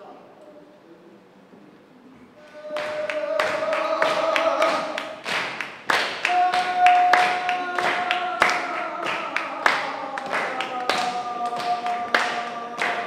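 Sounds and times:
person singing long notes: 2.4s - 5.3s, 6.2s - 13.0s.

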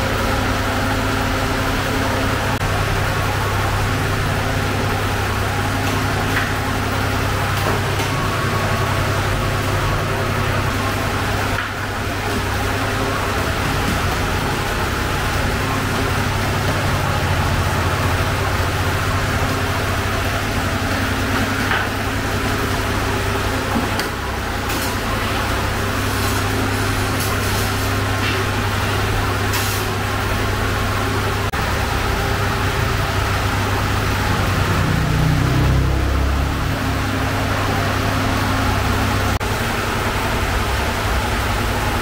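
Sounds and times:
oven machine roar: 0.0s - 42.0s.

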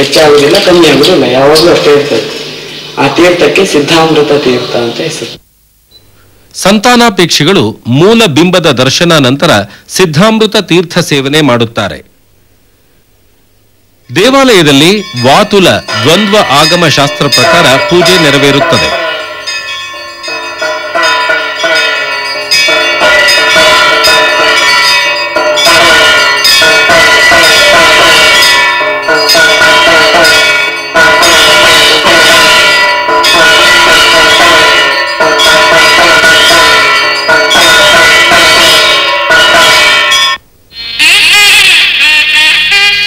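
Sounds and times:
temple bells ringing: 0.0s - 5.4s, 14.1s - 43.0s
music: 19.0s - 43.0s.

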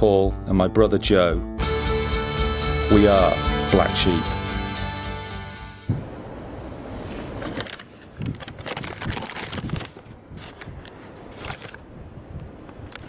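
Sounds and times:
paper bag and cardboard rustling: 6.9s - 11.9s.

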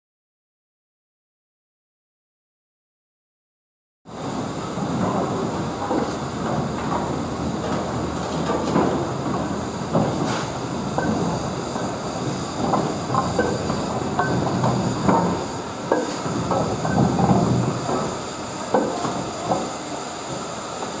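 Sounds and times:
steam locomotive running slowly: 4.1s - 21.0s
wheels clicking over rails: 4.2s - 21.0s.

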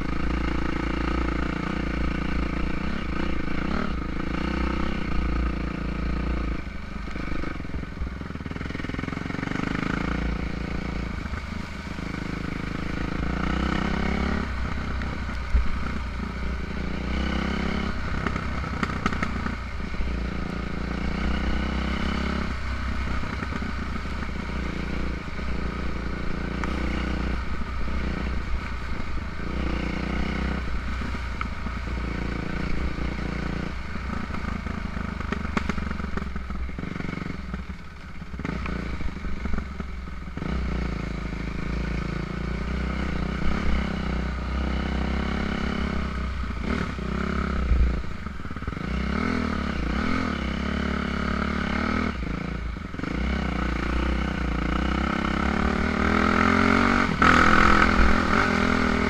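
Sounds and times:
dirt bike engine revving: 12.0s - 14.8s, 15.8s - 22.6s, 40.4s - 59.0s.

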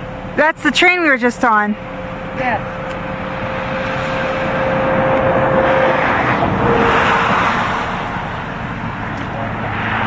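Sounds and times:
vehicle passing by: 2.4s - 10.0s.

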